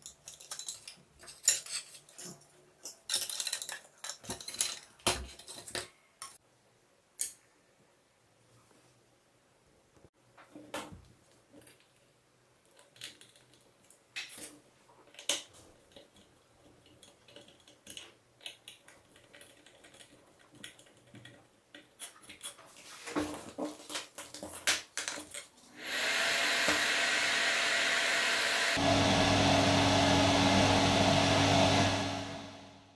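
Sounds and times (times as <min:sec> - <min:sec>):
exhaust fan humming: 0:25.8 - 0:32.9.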